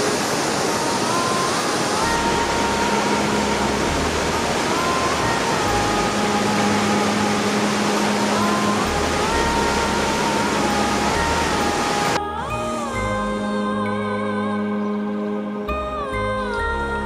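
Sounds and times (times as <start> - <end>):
waterfall rushing: 0.0 - 12.2
faint slow melody: 0.0 - 17.0
low held tone: 0.7 - 17.0.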